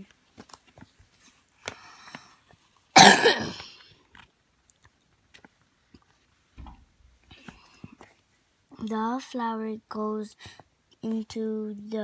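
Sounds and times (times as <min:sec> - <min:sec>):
person coughing: 0:03.0 - 0:03.8.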